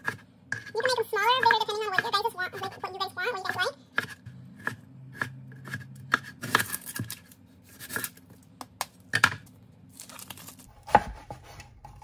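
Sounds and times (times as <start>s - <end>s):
knife chopping on wooden board: 3.5s - 7.2s.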